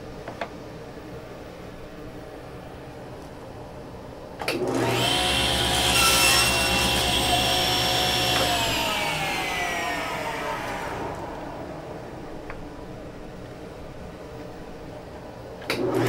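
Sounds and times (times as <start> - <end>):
table saw blade whine: 4.7 - 12.8.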